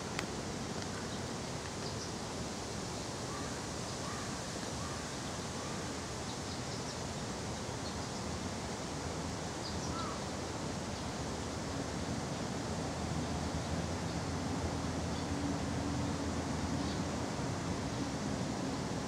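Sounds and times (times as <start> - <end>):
outdoor background hiss: 0.0 - 19.0.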